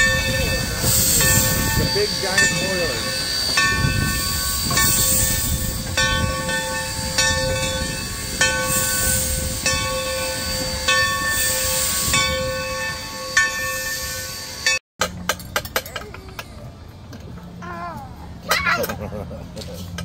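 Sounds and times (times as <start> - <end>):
hissing steam: 0.0 - 14.7
locomotive bell ringing: 0.0 - 16.1.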